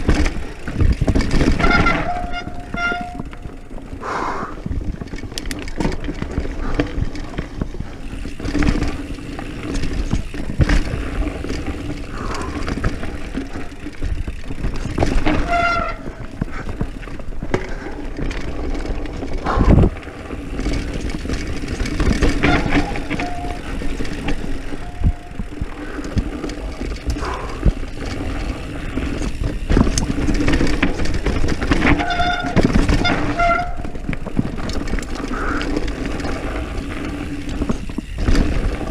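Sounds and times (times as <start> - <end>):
brakes squealing: 0.0 - 4.6, 6.6 - 38.9
bike frame and chain rattling: 0.0 - 38.9
wind rumble on microphone: 19.4 - 20.1.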